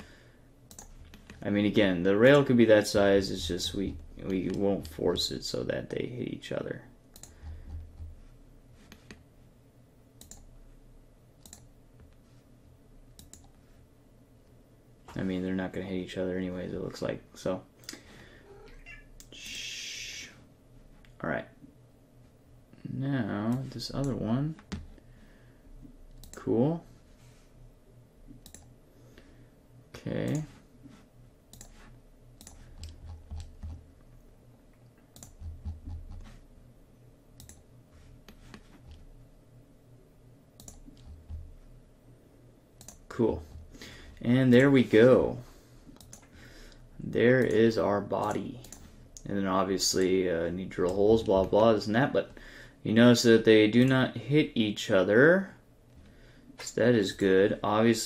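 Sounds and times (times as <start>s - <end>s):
faint low hum: 0.0s - 58.0s
computer mouse clicks: 0.7s - 1.4s, 7.1s - 8.1s, 10.2s - 10.5s, 11.4s - 11.7s, 13.1s - 13.6s, 26.1s - 26.5s, 28.3s - 28.7s, 31.5s - 31.8s, 32.4s - 33.8s, 35.1s - 36.3s, 37.4s - 37.6s, 40.6s - 41.4s, 42.8s - 43.0s, 46.0s - 46.8s
keyboard typing: 32.4s - 33.9s, 35.1s - 36.4s, 40.6s - 41.5s.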